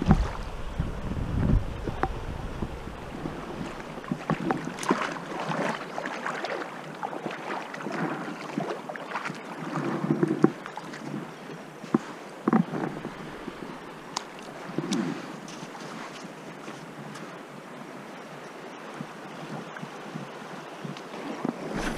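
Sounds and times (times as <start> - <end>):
wind on microphone: 0.0 - 5.8, 9.8 - 16.0, 18.9 - 21.9
river running: 0.0 - 21.9.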